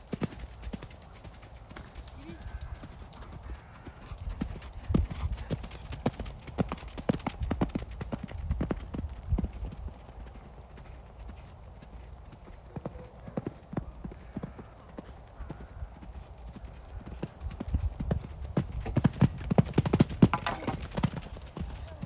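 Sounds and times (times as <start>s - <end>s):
horse hoofbeats on sand: 16.5s - 22.0s.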